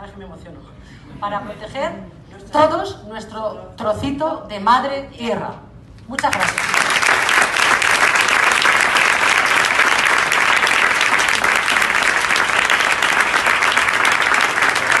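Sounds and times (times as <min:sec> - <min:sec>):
audience applauding: 0:06.3 - 0:15.0.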